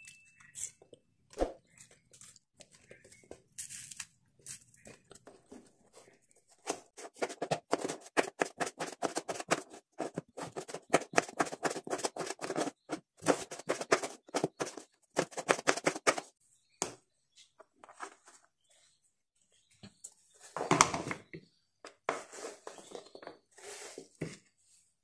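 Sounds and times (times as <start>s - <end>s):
knife chopping potatoes on board: 7.2s - 16.3s.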